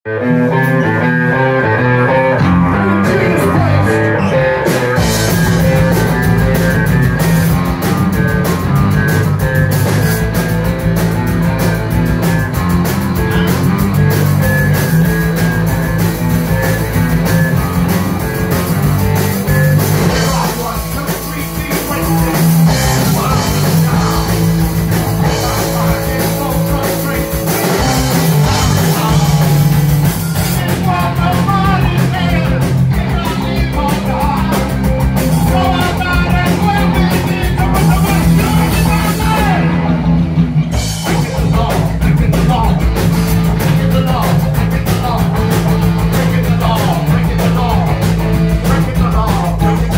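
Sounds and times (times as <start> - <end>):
bass guitar: 0.0 - 49.9
electric guitars: 0.0 - 49.9
man singing into microphone: 2.6 - 6.9, 19.5 - 39.8, 41.0 - 49.9
drum kit with cymbals: 4.6 - 49.9.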